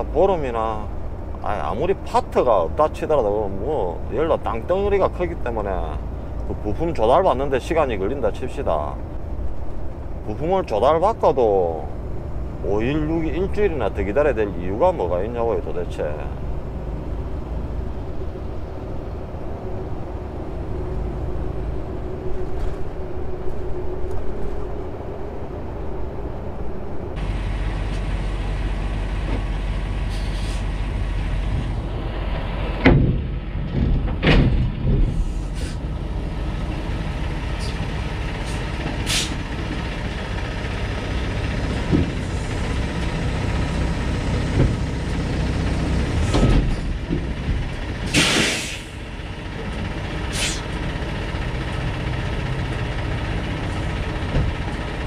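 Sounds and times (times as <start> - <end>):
diesel engine idling: 0.0 - 55.0
truck engine and road drone: 0.0 - 55.0
metal clunks: 32.7 - 35.7, 46.2 - 48.6
air hisses: 48.1 - 49.0, 50.3 - 50.7.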